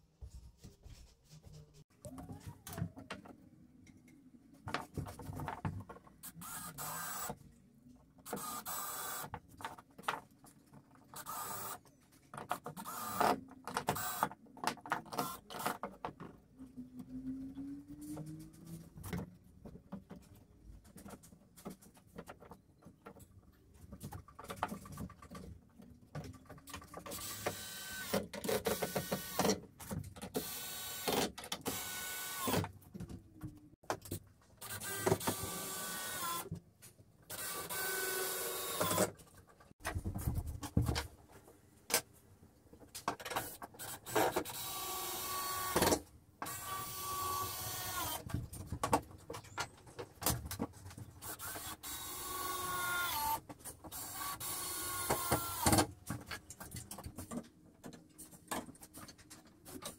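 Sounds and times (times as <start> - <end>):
cordless drill driving screws: 27.1 - 29.6, 30.4 - 32.7, 34.6 - 36.5, 37.3 - 39.1, 43.8 - 48.2, 51.2 - 55.8.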